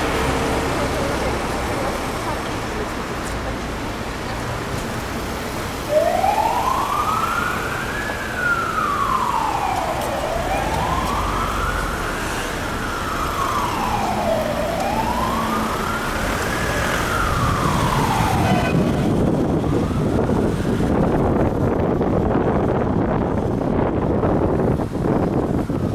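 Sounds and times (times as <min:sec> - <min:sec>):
cars passing on wet road: 0:00.0 - 0:25.9
emergency vehicle siren wailing: 0:05.7 - 0:25.9.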